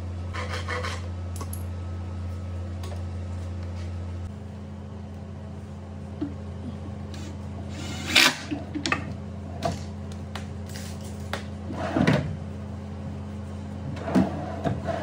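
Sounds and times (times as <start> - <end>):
drawer rolling on slides: 11.7 - 12.4, 13.9 - 15.0.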